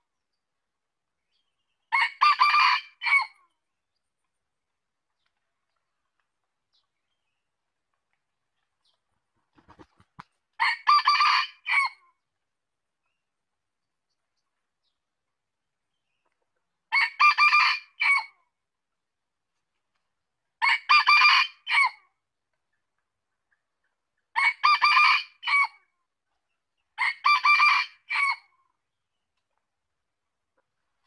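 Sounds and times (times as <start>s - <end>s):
rooster crowing: 2.0s - 3.3s.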